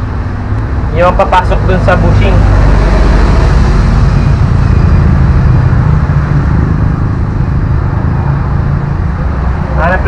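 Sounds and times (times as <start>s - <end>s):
vehicle engine rumbling: 0.0s - 10.0s.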